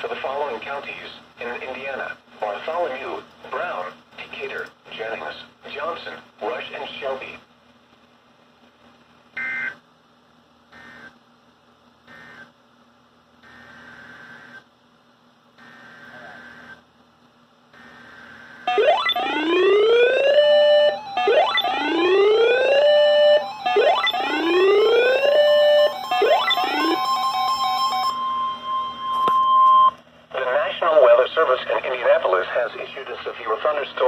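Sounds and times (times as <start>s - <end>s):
faint data bursts: 15.6s - 16.8s
alarm siren whoop: 18.7s - 30.0s
steady tone: 18.7s - 30.0s.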